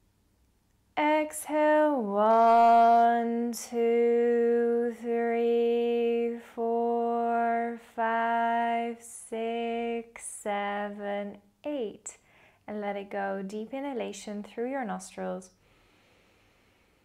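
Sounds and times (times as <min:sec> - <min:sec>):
woman counting in sung monotone: 0:07.7 - 0:15.5.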